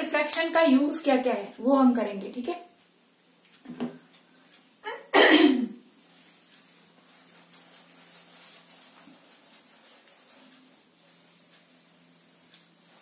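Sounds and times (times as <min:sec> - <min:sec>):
woman coughing: 0:04.8 - 0:05.8
eraser rubbing whiteboard: 0:06.0 - 0:13.0.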